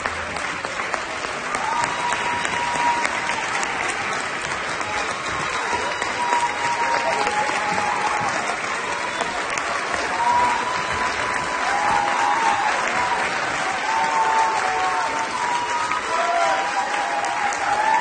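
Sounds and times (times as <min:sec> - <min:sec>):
audience applauding: 0:00.0 - 0:18.0.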